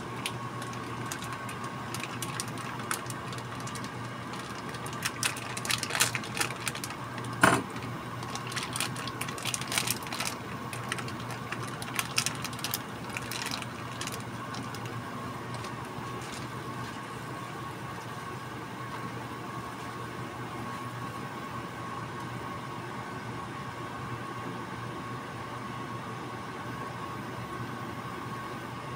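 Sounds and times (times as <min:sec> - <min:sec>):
meat crackling and popping in pan: 0:00.1 - 0:14.9.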